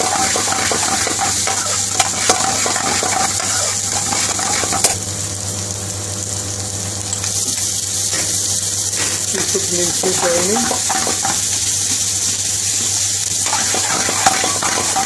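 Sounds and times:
metal spatula scraping pan: 0.0s - 5.0s, 10.1s - 11.4s, 13.4s - 15.0s
onion sizzling in oil: 0.0s - 15.0s.

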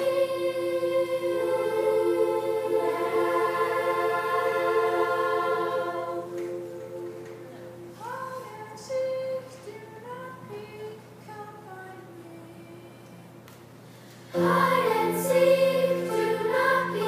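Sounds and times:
children's choir singing: 0.0s - 9.5s, 14.3s - 17.0s.

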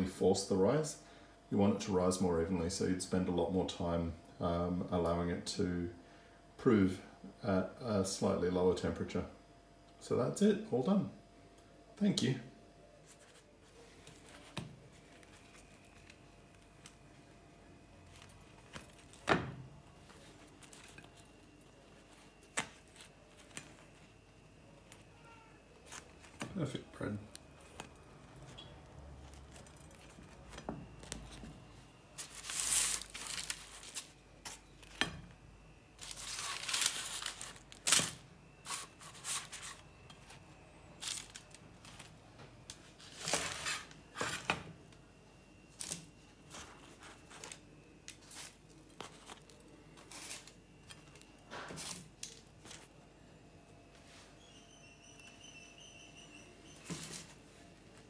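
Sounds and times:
bread crust crackling and tearing: 13.1s - 19.3s, 19.9s - 35.0s, 36.0s - 40.1s, 40.8s - 42.2s, 43.0s - 44.2s, 45.7s - 53.0s.

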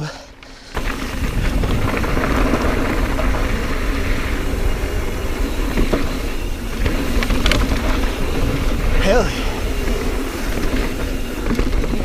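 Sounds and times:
bike tyres rumbling on dirt: 0.0s - 12.0s
bike knocking over bumps: 0.7s - 12.0s
wind on microphone: 0.7s - 12.0s.

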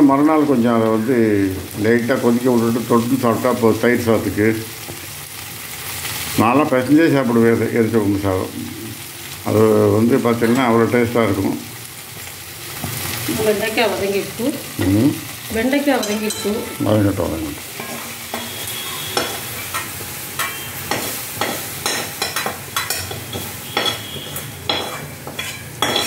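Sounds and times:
vegetables sizzling in oil: 0.0s - 26.0s
ladle scraping a pan: 24.7s - 26.0s.

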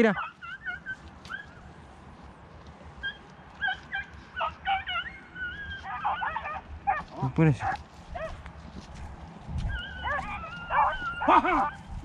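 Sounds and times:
dog whining and yipping: 0.2s - 1.6s, 3.0s - 7.0s, 9.6s - 11.9s.

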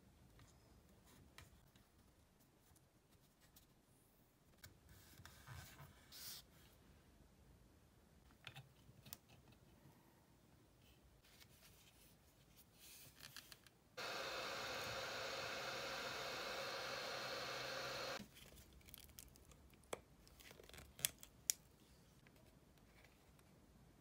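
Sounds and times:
heat gun blowing hiss: 14.0s - 18.2s.

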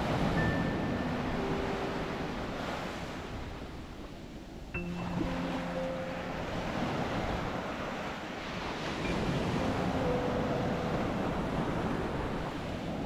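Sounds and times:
sea waves washing onto beach: 0.0s - 13.0s
wind on microphone: 6.3s - 13.0s.

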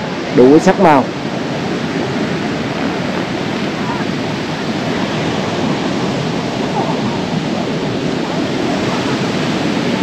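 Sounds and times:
surf and wind on beach: 0.0s - 10.0s.

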